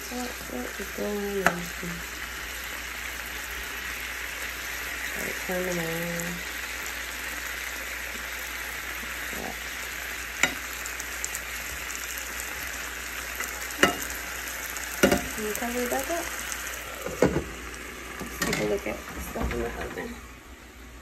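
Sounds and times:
vegetables sizzling in a pan: 0.0s - 21.0s
spatula knocking on pan: 13.8s - 14.1s, 15.0s - 15.4s.

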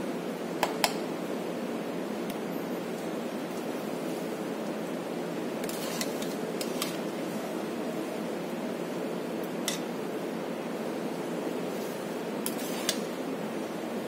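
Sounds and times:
metal spatula scraping steel pan: 5.6s - 7.0s, 12.4s - 13.1s.

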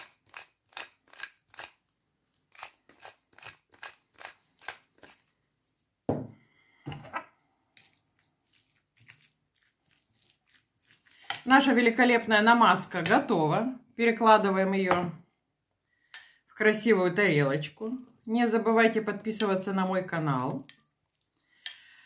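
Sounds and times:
pepper mill grinding: 0.0s - 5.3s.

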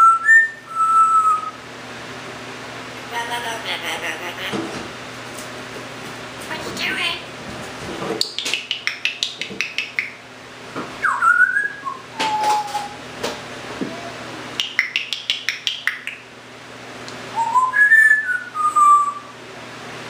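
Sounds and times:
parrot whistling: 0.0s - 1.6s, 11.0s - 13.0s, 13.9s - 16.2s, 17.3s - 19.3s
parrot clicking: 8.2s - 10.2s, 14.6s - 16.2s.

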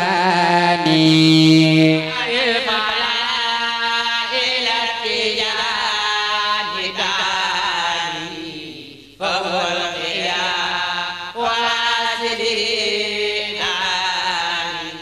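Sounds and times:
person chanting: 0.0s - 15.0s.

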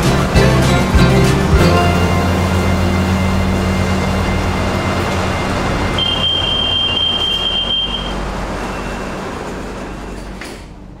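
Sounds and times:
train hum: 0.0s - 11.0s
high steady tone: 1.4s - 10.2s.

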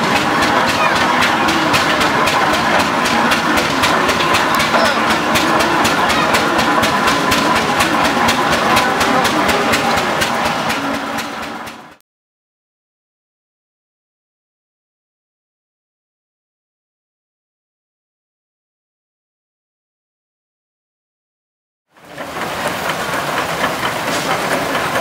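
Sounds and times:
old engine running: 0.0s - 12.0s, 21.9s - 25.0s.

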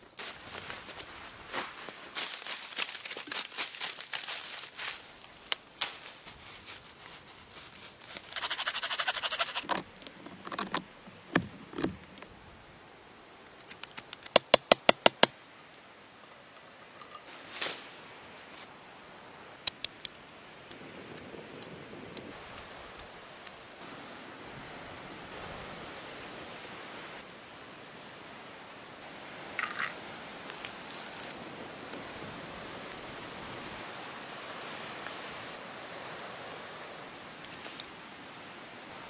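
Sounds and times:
dry leaves crunching and rustling: 0.1s - 9.7s.

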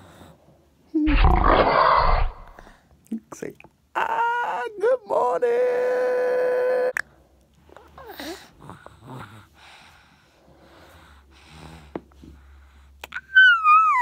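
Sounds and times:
soft breathing and snuffling: 7.6s - 13.0s.

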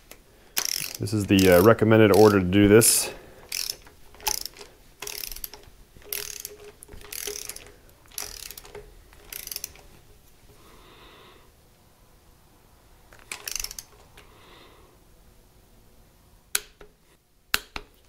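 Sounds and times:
socket ratchet clicking: 0.0s - 2.4s, 3.5s - 9.9s, 13.2s - 14.3s.

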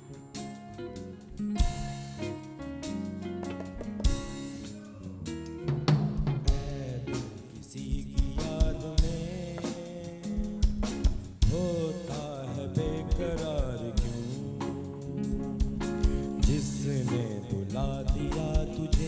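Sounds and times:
drum kit beat: 0.0s - 19.0s
live band playing: 0.0s - 19.0s
man singing into microphone: 6.4s - 19.0s.

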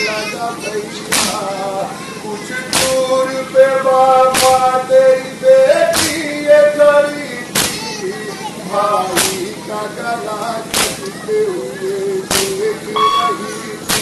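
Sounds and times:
man chanting a lament: 0.0s - 14.0s
people slapping chests in unison: 1.1s - 1.5s, 2.7s - 3.2s, 4.3s - 4.8s, 5.9s - 6.3s, 7.5s - 7.8s, 9.2s - 9.5s, 10.7s - 11.2s, 12.3s - 12.6s.

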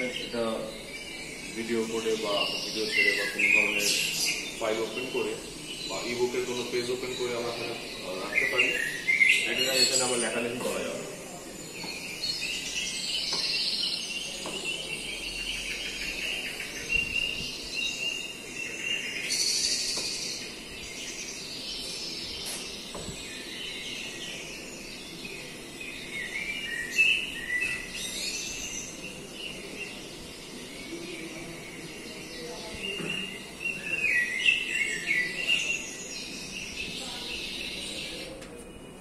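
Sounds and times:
recorded birdsong chirps: 0.0s - 39.0s.

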